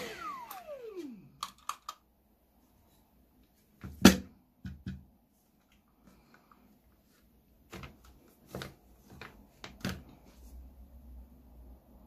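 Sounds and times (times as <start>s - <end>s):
hard plastic parts clicking: 1.3s - 2.0s.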